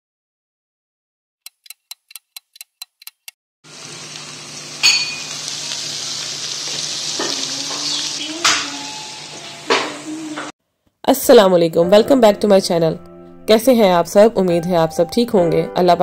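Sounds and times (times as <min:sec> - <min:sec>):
chicken sizzling in pan: 0:03.7 - 0:10.5.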